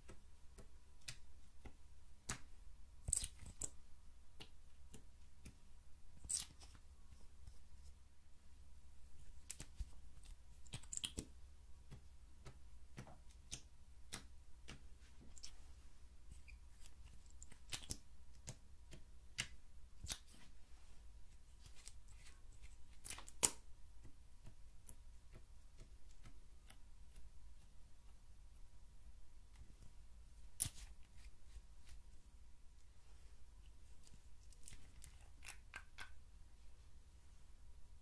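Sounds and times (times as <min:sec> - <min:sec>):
faint low hum: 0:00.0 - 0:38.0
small plastic clicks and taps: 0:09.4 - 0:15.5, 0:16.3 - 0:20.4.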